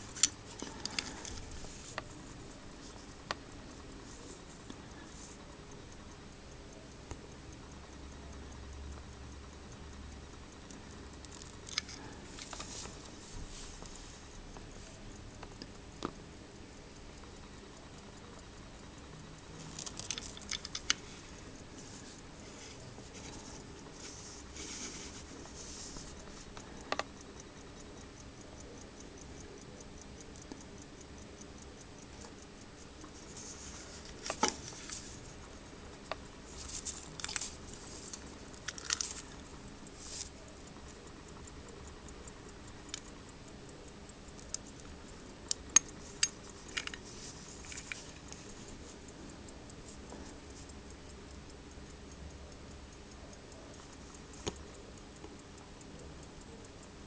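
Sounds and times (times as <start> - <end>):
pocket watch ticking: 0.0 - 57.0
watch case clicks and rustles: 38.7 - 39.2.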